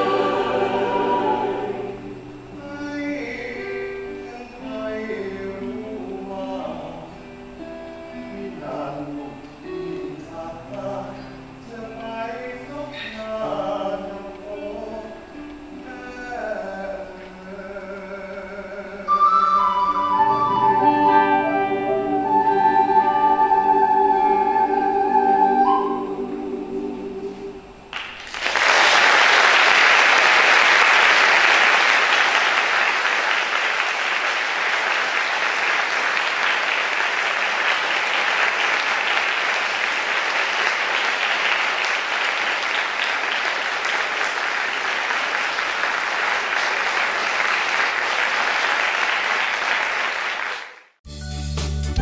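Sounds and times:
choir holding a chord: 0.0 - 7.1, 19.1 - 27.9
audience applause: 27.9 - 51.0.

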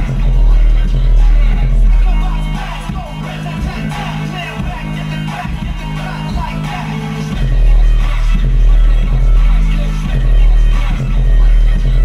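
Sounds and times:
deep pulsing bass note: 0.0 - 3.0, 7.4 - 12.0
bass-heavy electronic music: 0.0 - 12.0.

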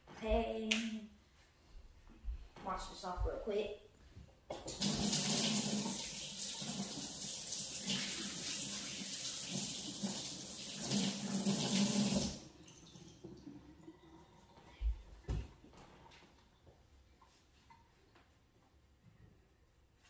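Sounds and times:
faucet running into steel sink: 4.6 - 14.2.

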